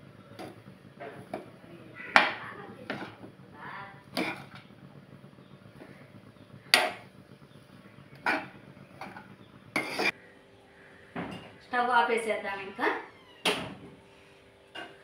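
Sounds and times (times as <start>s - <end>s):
spatula scraping rice in a pan: 4.2s - 4.6s, 9.8s - 10.2s.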